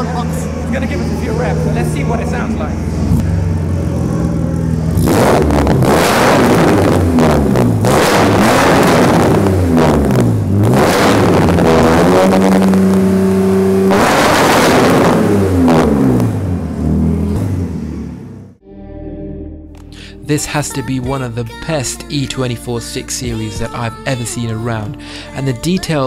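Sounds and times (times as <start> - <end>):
car engine revving: 0.0 - 18.6.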